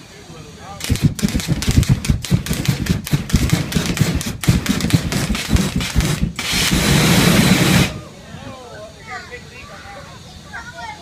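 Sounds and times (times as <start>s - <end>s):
loud steady rush of flame: 0.0s - 11.0s
flame bursts: 0.8s - 8.2s.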